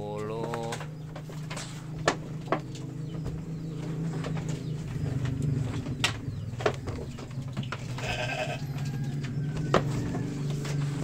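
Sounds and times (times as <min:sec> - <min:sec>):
steady low hum: 0:00.0 - 0:11.0
sheep bleating: 0:08.0 - 0:08.7.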